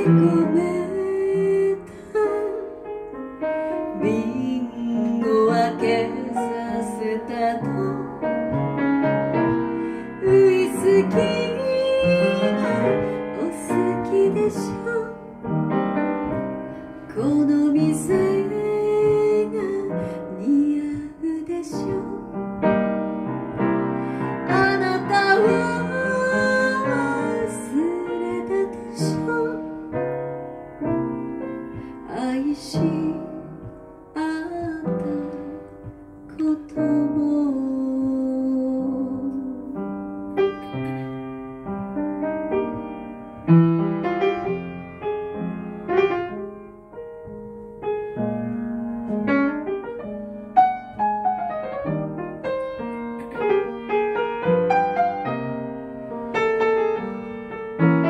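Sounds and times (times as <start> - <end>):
woman singing a pop ballad: 0.0 - 2.9, 3.9 - 8.6, 9.5 - 15.4, 17.1 - 22.4, 24.1 - 30.0, 31.7 - 39.9
piano accompaniment: 0.0 - 58.0.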